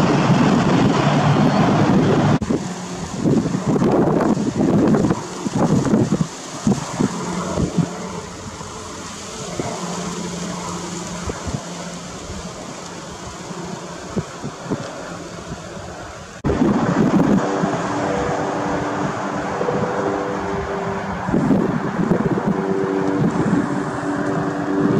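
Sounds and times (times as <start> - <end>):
helicopter engine and rotor drone: 0.0 - 24.9.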